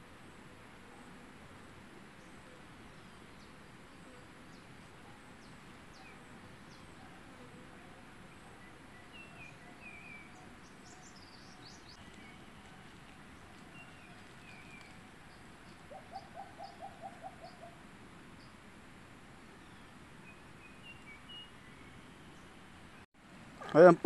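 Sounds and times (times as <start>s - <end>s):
background hiss: 0.0s - 24.0s
small birds chirping: 4.4s - 17.8s.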